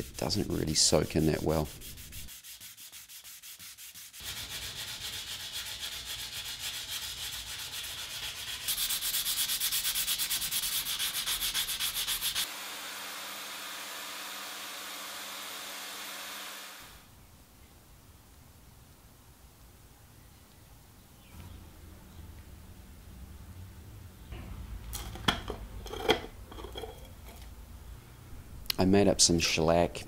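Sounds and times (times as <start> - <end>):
hand sanding with sandpaper: 0.0 - 12.5
vacuum cleaner whining: 12.5 - 17.0.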